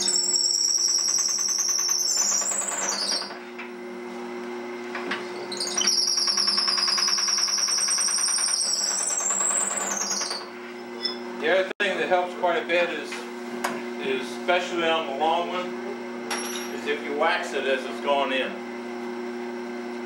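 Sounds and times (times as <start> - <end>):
drill bit squealing in wood: 0.0 - 3.5, 5.4 - 11.3.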